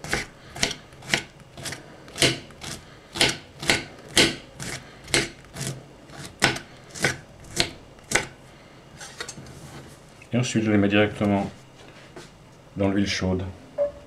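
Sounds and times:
knife chopping on cutting board: 0.0 - 8.3.

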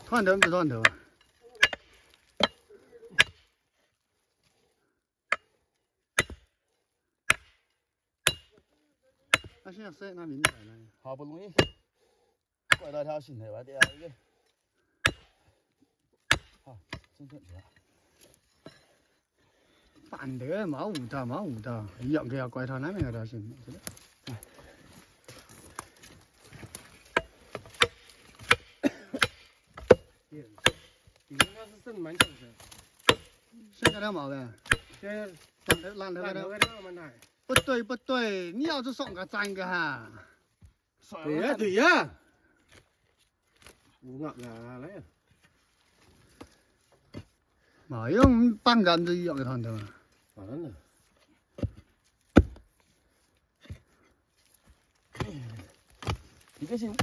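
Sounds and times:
hoe chopping into earth: 48.1 - 48.6, 51.6 - 52.7, 55.1 - 57.0.

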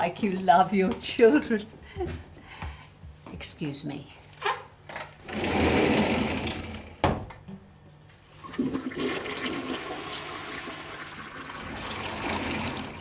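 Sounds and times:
toilet flushing: 5.3 - 6.8, 8.4 - 13.0
cistern refilling: 8.4 - 13.0.

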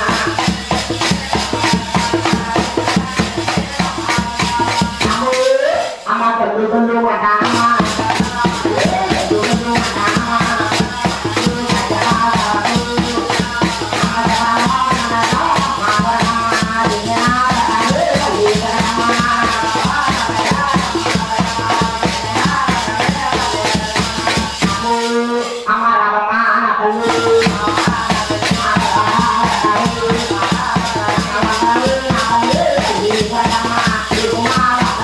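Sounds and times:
drum beat: 0.0 - 5.5, 7.4 - 25.3, 27.0 - 35.0
small hand cymbals: 0.0 - 6.0, 7.4 - 25.7, 27.0 - 35.0
man singing: 7.0 - 35.0.

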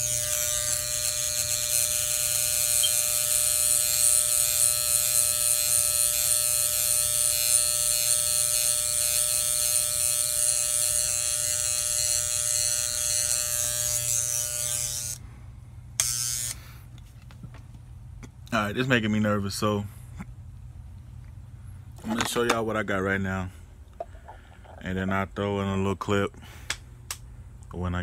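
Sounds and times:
electric hair clippers buzzing: 0.0 - 15.2, 15.9 - 16.8.

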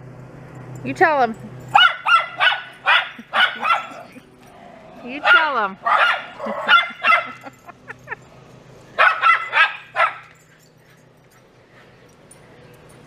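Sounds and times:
dogs barking high-pitched yaps: 1.7 - 4.2, 5.2 - 7.5, 9.0 - 10.6.

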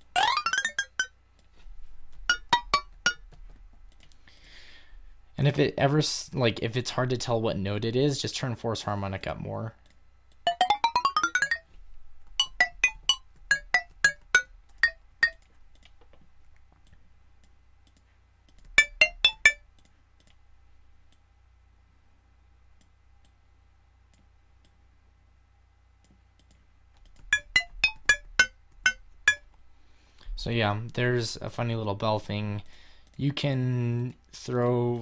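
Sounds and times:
bright bell-like synth notes: 0.1 - 1.1, 10.5 - 11.6, 18.8 - 19.6, 27.4 - 29.4.

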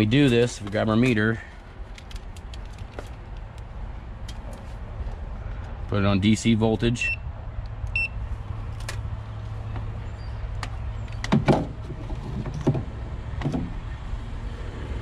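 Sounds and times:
meter beeping: 7.9 - 8.2.

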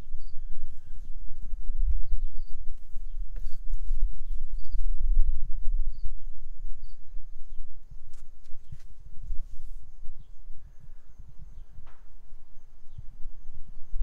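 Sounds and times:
wind buffeting microphone: 0.0 - 14.0
faint high chirp: 2.0 - 7.7.

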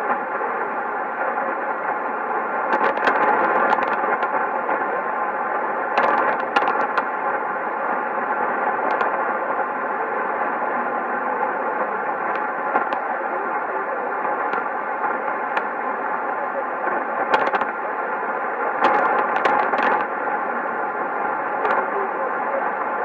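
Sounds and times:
radio static hiss: 0.0 - 23.0
sharp static crashes: 2.4 - 9.8, 16.9 - 18.0, 18.7 - 20.4.

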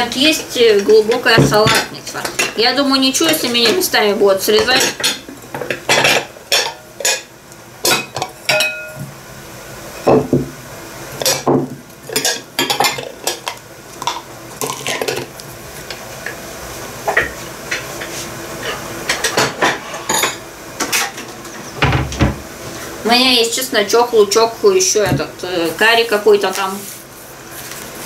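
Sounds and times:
glass and ceramic bowls clinking: 7.9 - 9.1.

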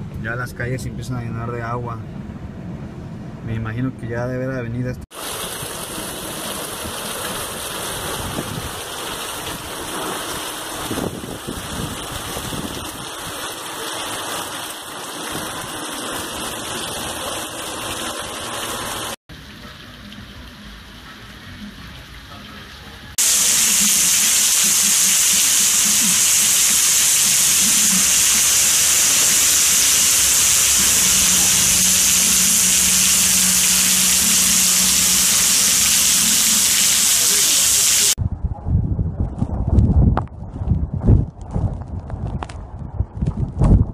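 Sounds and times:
heavy rain: 5.1 - 19.6, 23.2 - 38.2
strong wind: 5.5 - 13.5, 38.1 - 43.9.

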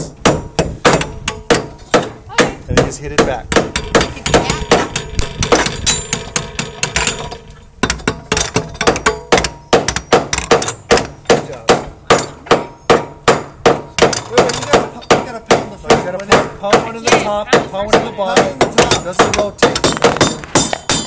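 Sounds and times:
hammers striking nails into metal: 0.0 - 21.0.

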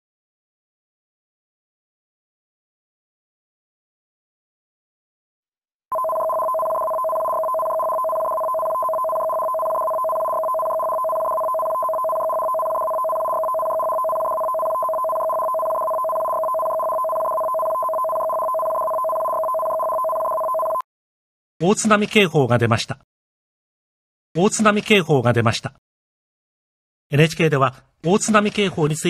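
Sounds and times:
two-pitch electronic alert tone: 5.9 - 20.8.

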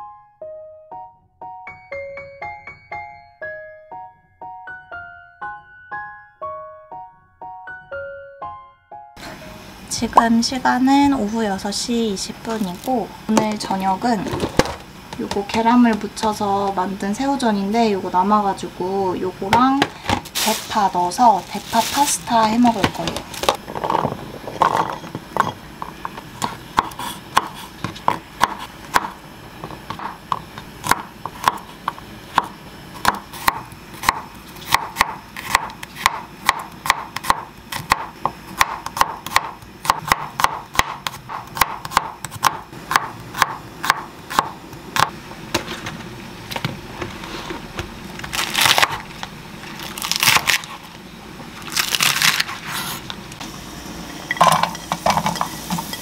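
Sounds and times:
knife chopping on wooden board: 24.6 - 45.1.

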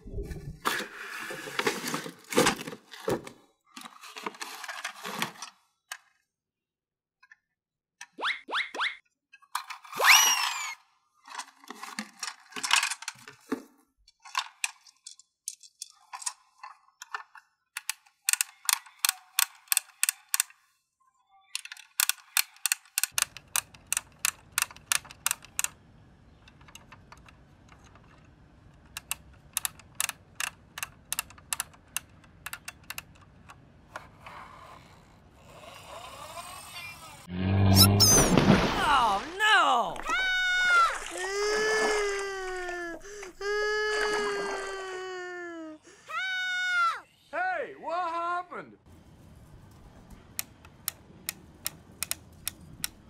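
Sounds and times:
rapid plastic ratchet clicking: 17.8 - 20.5, 21.7 - 25.7
sliding tonal sound effects: 37.2 - 41.0.

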